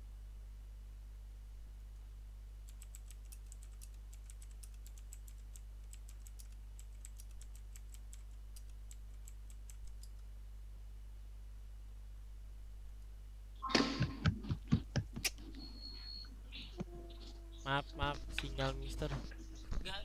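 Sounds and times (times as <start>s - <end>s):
steady low hum: 0.0s - 20.0s
computer keyboard typing: 2.6s - 10.2s.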